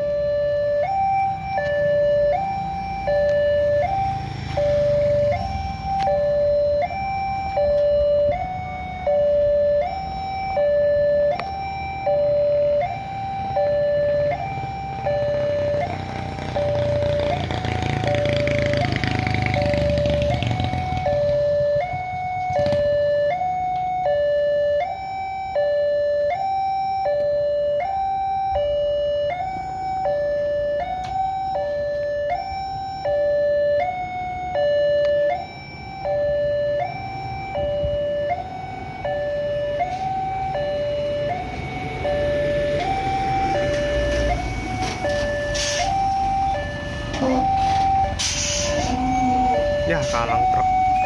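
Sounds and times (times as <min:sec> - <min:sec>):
truck engine rumble: 0:00.0 - 0:51.0
two-tone crossing alarm: 0:00.0 - 0:51.0.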